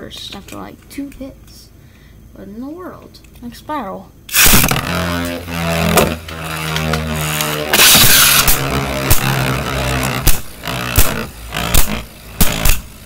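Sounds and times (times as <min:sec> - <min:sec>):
spinning tops whirring: 0:04.3 - 0:13.0.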